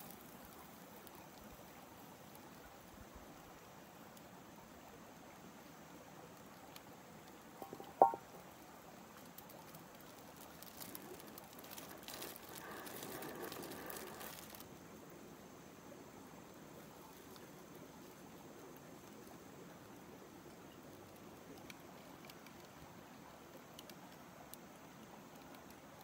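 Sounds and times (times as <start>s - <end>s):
faint outdoor background: 0.0s - 26.0s
plastic bag rustling: 10.4s - 14.6s.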